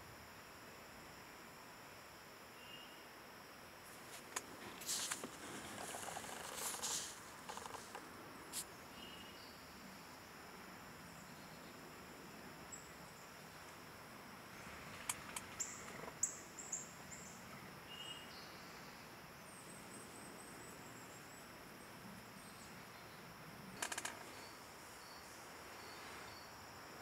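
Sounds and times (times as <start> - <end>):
insects chirring: 0.0 - 27.0
sharp clicks: 4.3 - 8.0, 23.8 - 24.3
bird chirping: 8.7 - 9.8.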